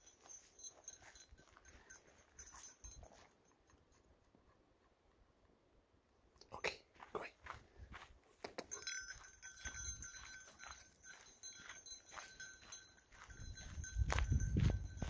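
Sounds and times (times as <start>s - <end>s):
footsteps on dirt trail: 0.0s - 3.6s, 6.9s - 15.0s
light metallic jingle: 0.0s - 4.0s, 8.5s - 15.0s
wind buffeting microphone: 13.2s - 15.0s.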